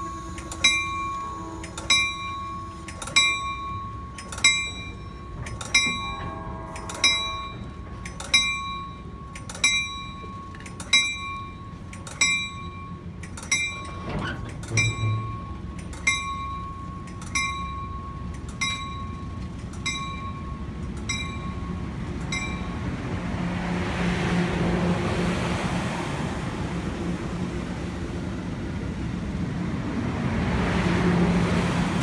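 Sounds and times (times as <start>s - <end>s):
locomotive bell ringing: 0.0s - 23.1s
diesel train rumble: 0.0s - 32.0s.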